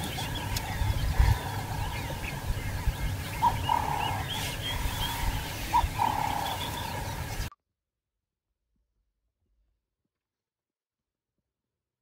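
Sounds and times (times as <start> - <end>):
birds chirping and calling: 0.0 - 7.5
buzzy bird calls: 0.0 - 7.5.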